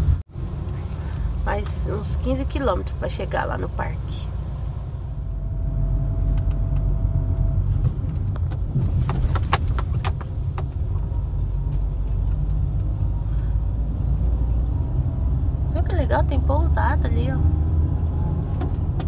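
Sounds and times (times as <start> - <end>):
car driving rumble: 0.0 - 19.0.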